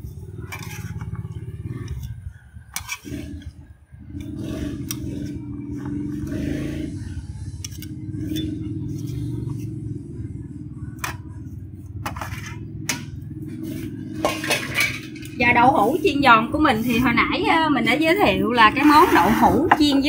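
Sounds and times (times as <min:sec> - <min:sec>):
steady low hum: 0:00.0 - 0:20.0
spatula scraping and tapping wok: 0:00.4 - 0:03.6, 0:12.0 - 0:16.2, 0:18.7 - 0:20.0.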